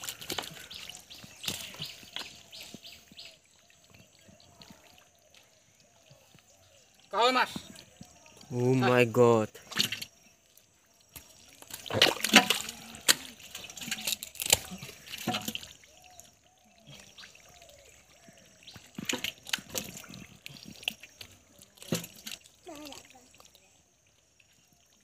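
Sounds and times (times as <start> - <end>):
hands splashing in muddy water: 0.0 - 3.3, 11.1 - 16.3.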